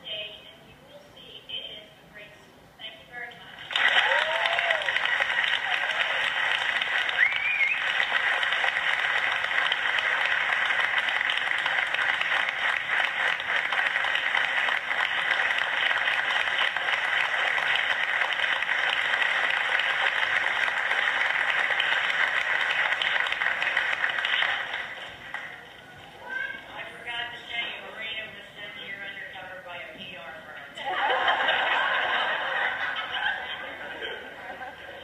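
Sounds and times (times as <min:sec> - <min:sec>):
audience applauding: 0:03.6 - 0:25.8.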